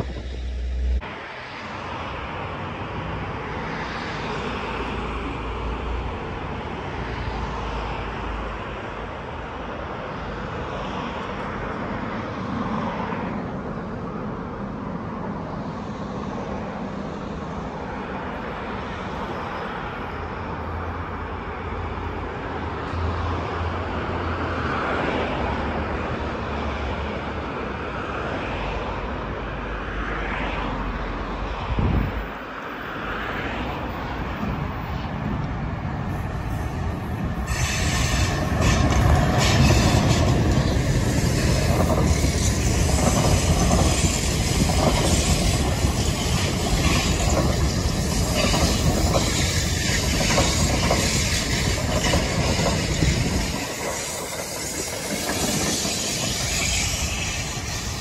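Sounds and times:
train wheels rumbling over rails: 33.1s - 58.0s
wheel squeal: 37.4s - 58.0s.

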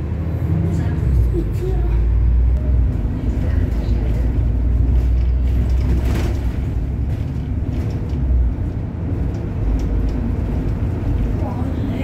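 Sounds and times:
bus engine and tyres rumbling: 0.0s - 12.0s.

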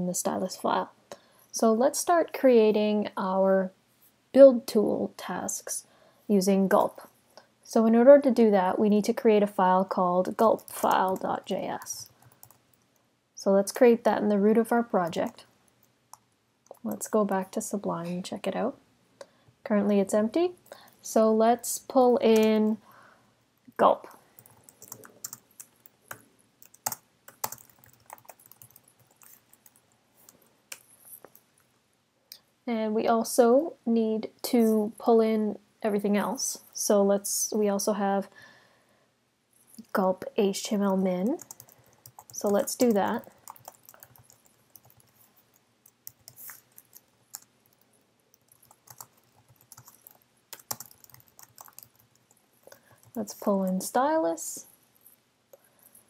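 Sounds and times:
keyboard typing clicks: 24.4s - 29.8s, 41.4s - 45.2s, 45.8s - 53.2s.

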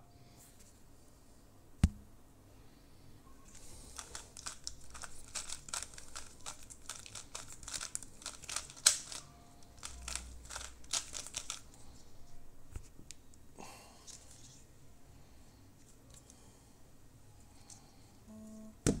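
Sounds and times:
plastic puzzle cube clicking: 4.0s - 11.6s.

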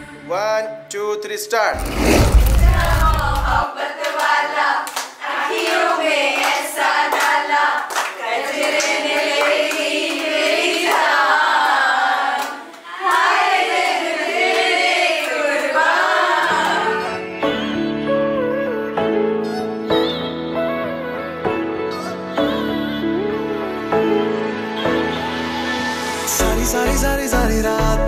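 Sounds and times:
women singing together: 2.7s - 17.2s
hands clapping: 3.4s - 11.8s.

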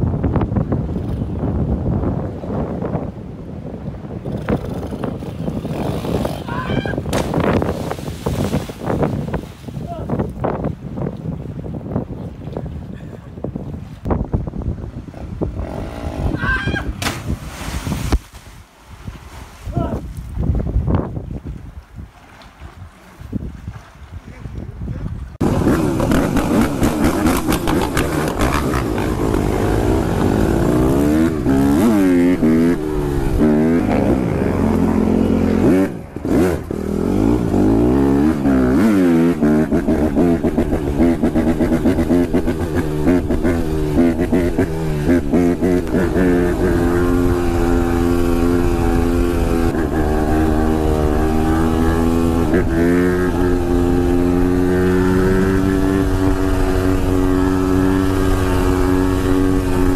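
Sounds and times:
dirt bike engine revving: 4.3s - 7.9s, 15.1s - 16.4s, 25.4s - 59.9s.

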